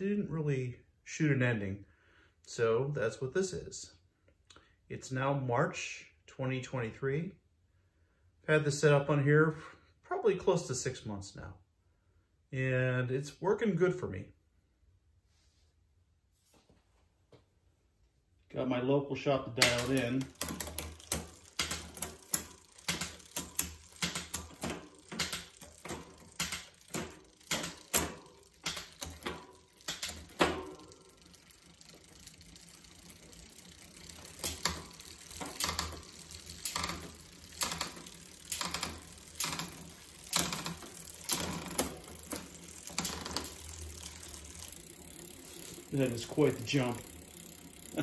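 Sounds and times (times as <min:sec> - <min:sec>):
bicycle chain running: 0:19.6 - 0:48.0
derailleur shifting clicks: 0:19.6 - 0:48.0.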